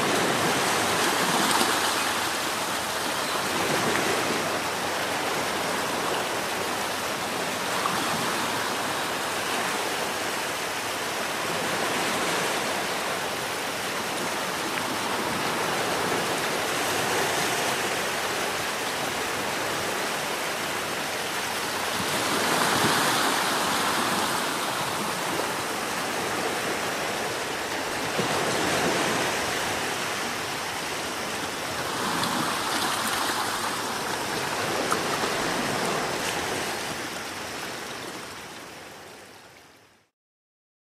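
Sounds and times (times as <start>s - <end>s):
sea surf washing onto shore: 0.0s - 39.6s.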